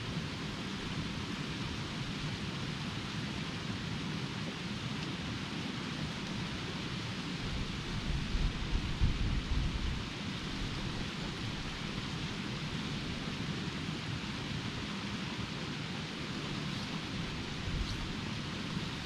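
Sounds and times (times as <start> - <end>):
wind buffeting microphone: 7.4 - 13.6, 16.4 - 19.0.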